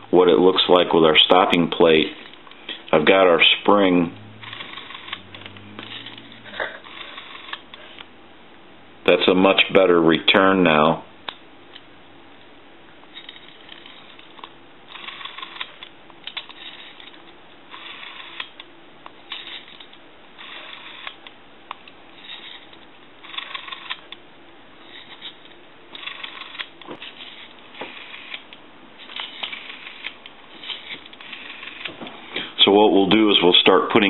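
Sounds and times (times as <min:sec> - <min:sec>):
rotary phone dial whirring: 0:01.8 - 0:08.0, 0:13.1 - 0:24.2, 0:24.8 - 0:32.5.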